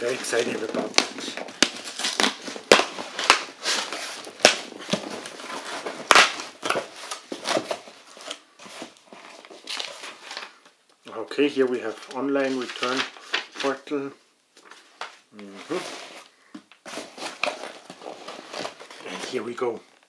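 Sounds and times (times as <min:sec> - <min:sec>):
packing tape ripping: 0:00.0 - 0:07.7
cardboard crackling: 0:00.0 - 0:10.6, 0:11.7 - 0:13.9, 0:14.6 - 0:19.8.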